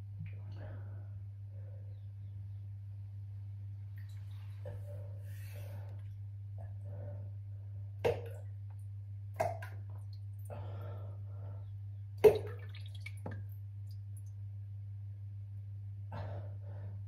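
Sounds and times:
low hum: 0:00.0 - 0:17.0
drops plopping into toilet water: 0:08.0 - 0:08.5, 0:09.3 - 0:10.1, 0:12.2 - 0:13.5.

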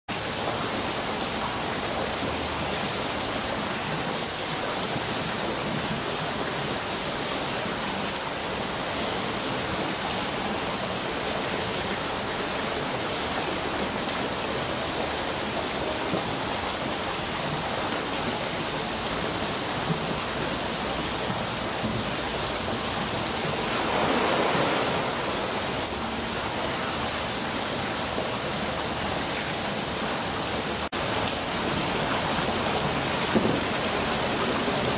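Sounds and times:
running water rushing: 0:00.1 - 0:34.9.

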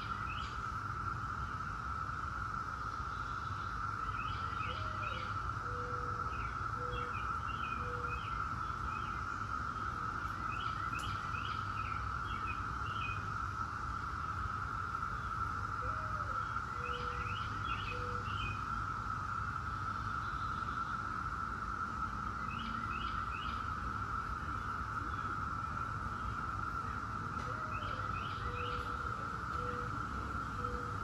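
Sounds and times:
cicadas droning: 0:00.0 - 0:31.0
low cooing call: 0:04.6 - 0:08.4, 0:15.8 - 0:18.6, 0:27.3 - 0:31.0
birds chirping: 0:22.4 - 0:31.0.

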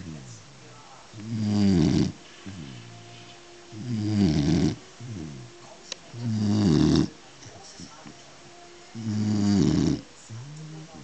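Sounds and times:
dog snoring: 0:01.2 - 0:07.2, 0:08.9 - 0:10.8.

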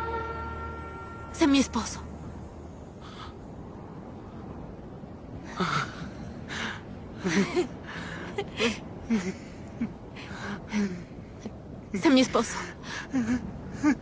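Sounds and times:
woman laughing and sobbing: 0:07.2 - 0:10.1.

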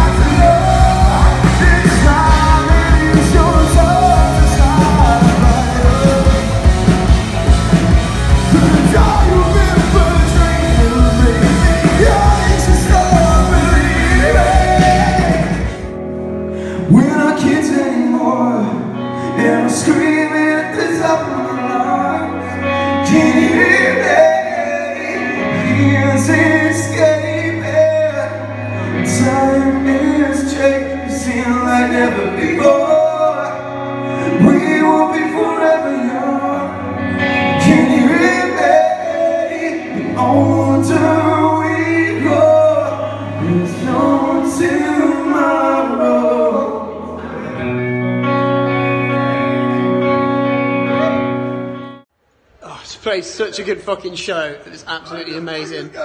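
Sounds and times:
man singing: 0:00.0 - 0:16.0, 0:16.6 - 0:47.8
drums: 0:00.0 - 0:18.5
bass guitar: 0:00.0 - 0:52.0
electric guitar: 0:00.0 - 0:52.1.

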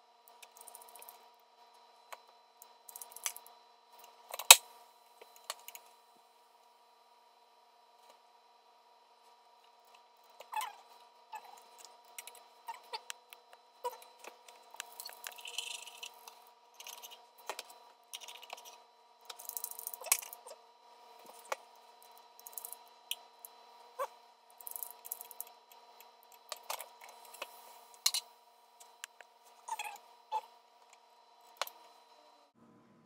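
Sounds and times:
spatula clicks and scrapes: 0:13.0 - 0:20.4.

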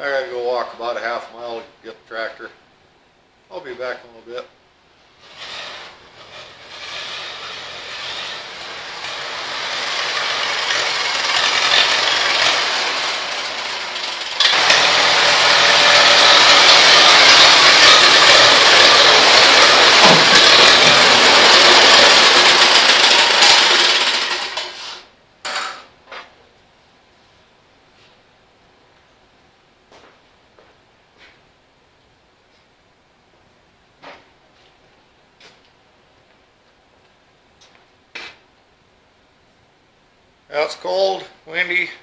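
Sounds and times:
tractor engine running: 0:06.0 - 0:24.8.

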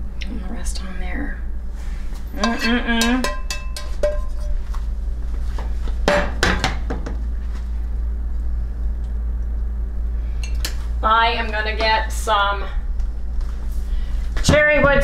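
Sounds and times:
steady low hum: 0:00.0 - 0:15.0
utensils clinking on plates: 0:02.4 - 0:04.6.

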